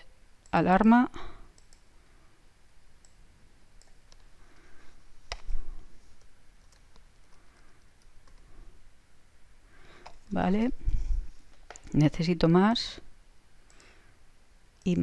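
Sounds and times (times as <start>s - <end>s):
computer mouse clicks: 1.5s - 1.9s, 3.0s - 3.2s, 3.8s - 4.4s, 5.2s - 8.5s, 10.0s - 10.3s, 11.4s - 12.1s, 13.6s - 14.0s.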